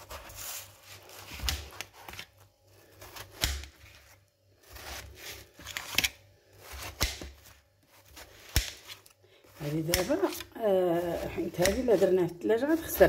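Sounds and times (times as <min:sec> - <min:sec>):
knife slicing watermelon: 0:03.0 - 0:13.0.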